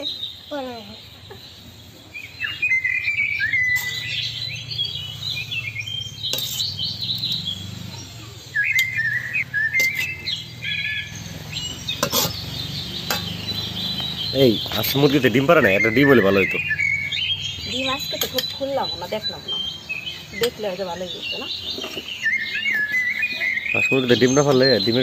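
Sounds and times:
small birds chirping: 0.0 - 25.0
spoon clinking on glass and metal: 9.8 - 10.2, 11.9 - 12.4, 13.0 - 13.5, 18.0 - 18.7.

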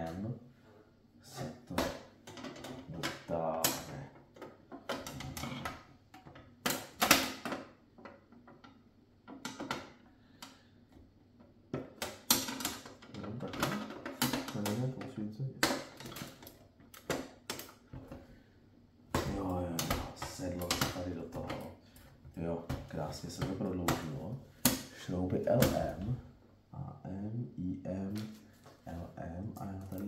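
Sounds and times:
plastic parts clicking together: 11.7 - 15.0, 15.6 - 17.9.

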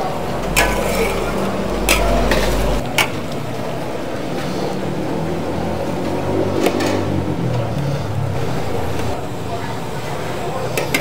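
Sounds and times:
low hum: 0.0 - 4.1
rushing kitchen noise: 0.0 - 11.0.

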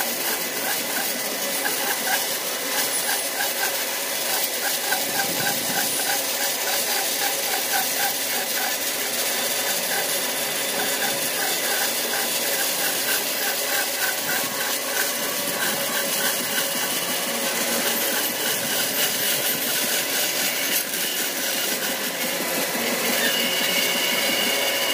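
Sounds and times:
band saw cutting wood: 0.0 - 24.9.

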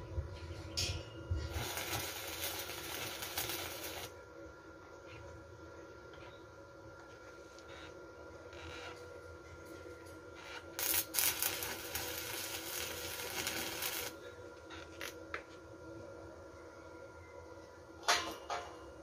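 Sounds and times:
welding arc crackling: 1.5 - 4.1, 10.4 - 14.2.

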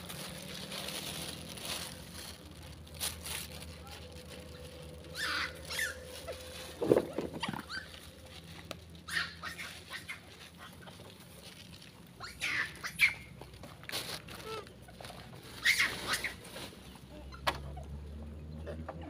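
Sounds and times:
monkeys squealing and chirping: 5.1 - 6.6, 7.4 - 8.2, 9.0 - 11.0, 12.2 - 13.3, 14.4 - 16.4.

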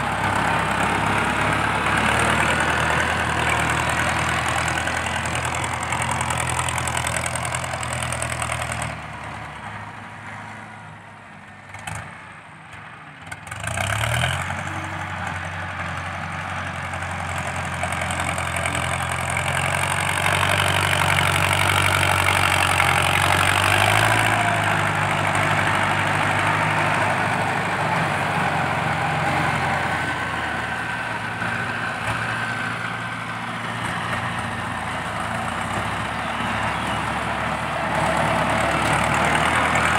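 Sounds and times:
tractor diesel engine running: 0.0 - 39.9.

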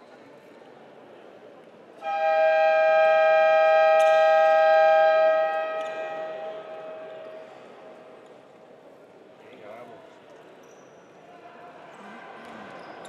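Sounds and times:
arena buzzer long tone: 2.0 - 7.4.

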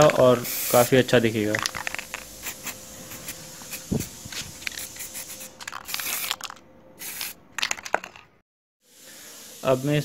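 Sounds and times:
aerosol spray can hiss: 0.3 - 1.0, 1.7 - 6.4, 7.0 - 7.4.

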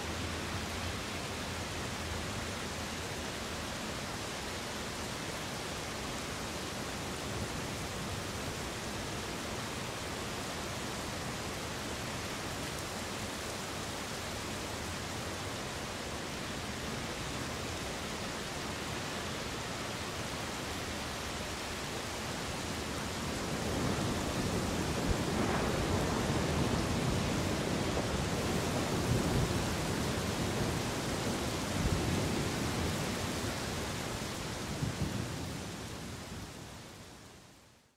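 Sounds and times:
steady rain hiss: 0.0 - 37.9
thunder rumbling: 23.5 - 33.4.

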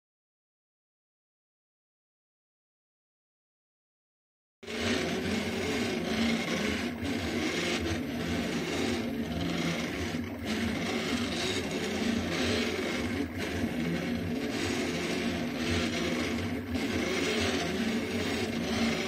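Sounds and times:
stepper motors whining: 4.6 - 19.0.

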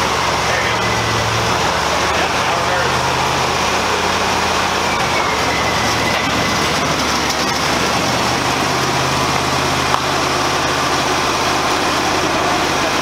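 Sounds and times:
band saw cutting log: 0.0 - 13.0
sawmill engine running: 0.0 - 13.0.

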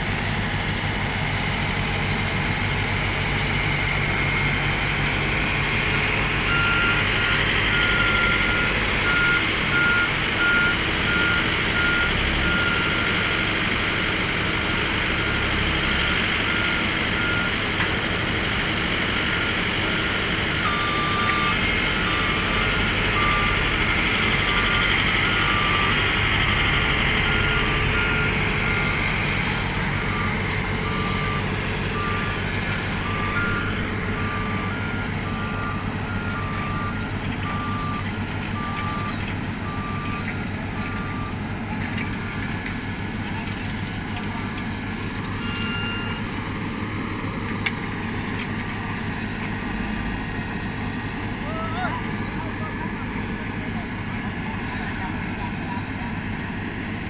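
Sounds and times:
reversing alarm beeping: 0.0 - 42.9, 44.1 - 55.8
road roller engines running: 0.0 - 57.0
lower pitched reversing alarm: 0.6 - 17.8, 18.6 - 41.5, 45.1 - 47.2.

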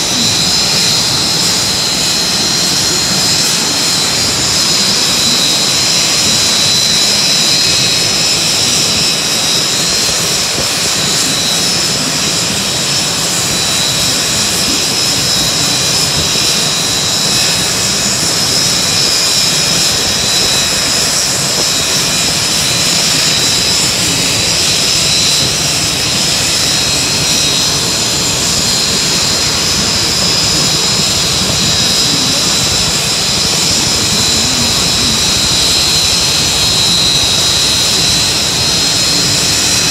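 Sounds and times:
turbine engine whine: 0.0 - 39.9.

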